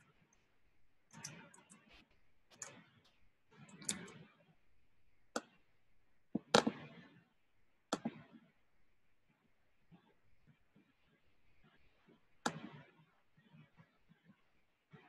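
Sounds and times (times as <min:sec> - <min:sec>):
keyboard and mouse clicks: 0:01.1 - 0:04.2, 0:06.4 - 0:06.8, 0:07.9 - 0:08.2.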